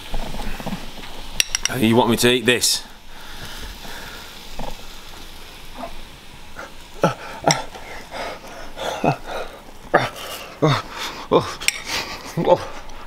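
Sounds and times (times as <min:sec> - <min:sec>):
steady hiss: 0:00.0 - 0:13.0
eating sounds: 0:03.4 - 0:13.0.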